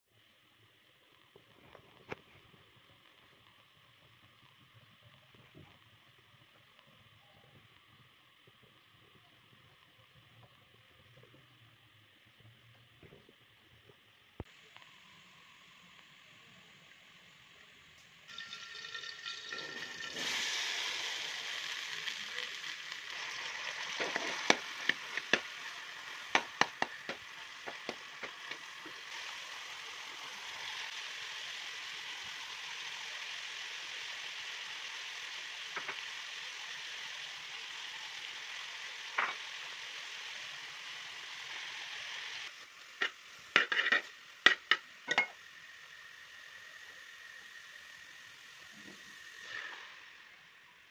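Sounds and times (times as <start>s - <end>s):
vegetables sizzling in hot oil: 0.1s - 50.9s
oil popping: 23.1s - 29.2s
metal spatula scraping a pan: 43.0s - 45.3s.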